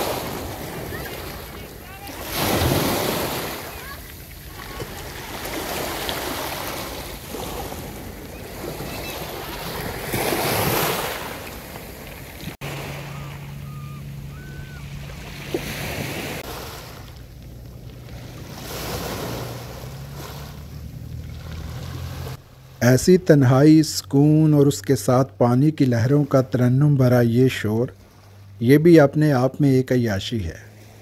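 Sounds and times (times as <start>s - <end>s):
waves washing over pebbles: 0.0s - 13.6s, 14.9s - 22.4s.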